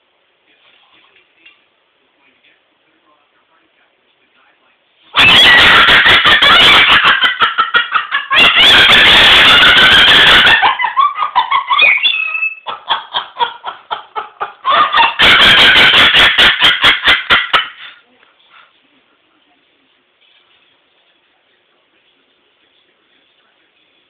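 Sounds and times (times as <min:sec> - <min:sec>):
cockatoo laughing loudly: 0:05.2 - 0:18.0.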